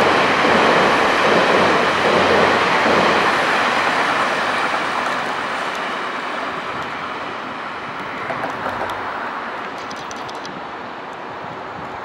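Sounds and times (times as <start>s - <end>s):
passenger train rolling on track: 0.0s - 12.0s
faint ticks: 9.8s - 10.5s.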